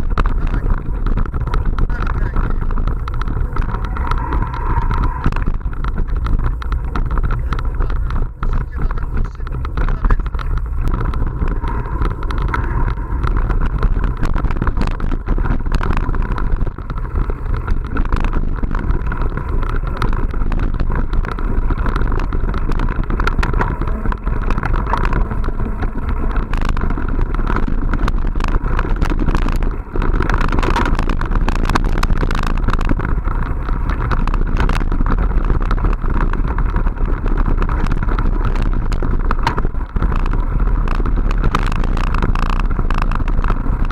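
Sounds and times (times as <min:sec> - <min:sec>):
bike rattling and clicking: 0:00.0 - 0:43.9
wind rumble on microphone: 0:00.0 - 0:43.9.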